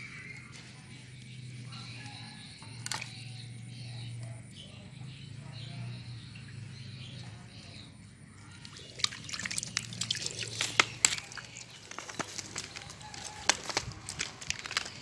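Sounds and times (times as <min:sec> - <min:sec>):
water splashing and dripping: 0:02.8 - 0:03.2, 0:08.4 - 0:15.0.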